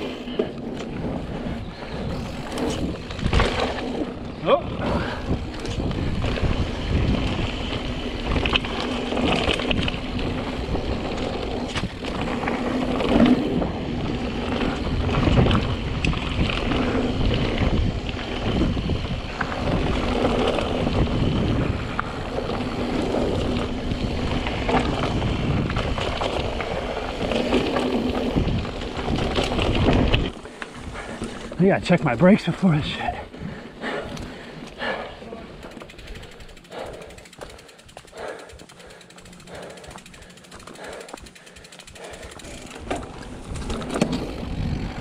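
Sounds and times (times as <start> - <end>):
tyres rolling over dirt: 0.0 - 33.1
bike rattling and knocking: 0.0 - 45.0
wind on microphone: 0.8 - 31.6, 42.2 - 45.0.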